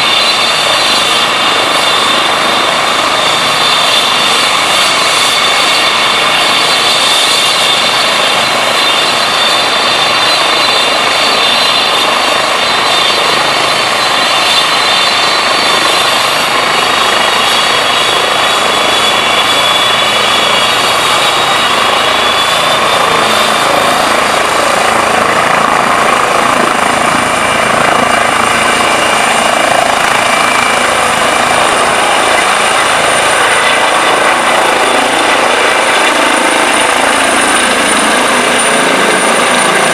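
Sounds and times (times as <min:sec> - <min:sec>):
helicopter rotor rushing: 0:00.0 - 0:39.9
helicopter turbine whine: 0:00.0 - 0:39.9.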